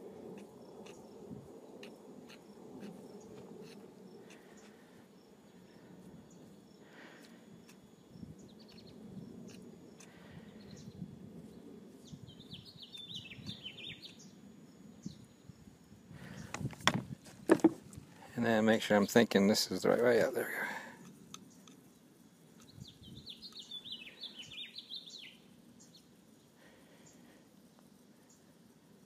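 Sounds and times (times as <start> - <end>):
bird chirping: 11.6 - 15.6, 21.4 - 26.1.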